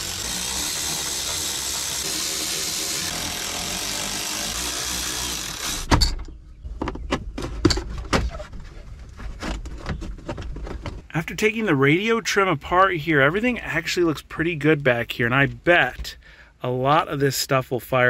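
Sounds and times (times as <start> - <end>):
electric ratchet running: 0.0 - 5.9.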